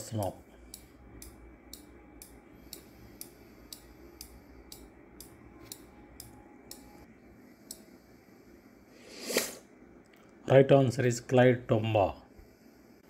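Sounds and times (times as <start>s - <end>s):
countdown timer ticking: 0.0s - 7.1s.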